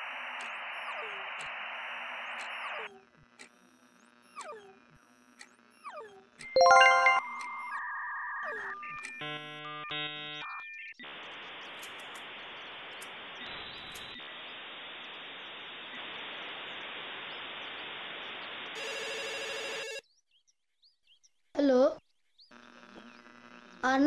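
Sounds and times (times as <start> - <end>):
telephone ringing: 6.6 - 7.3, 18.8 - 20.0
electronic beeps: 6.6 - 9.0
static hiss: 11.1 - 18.8.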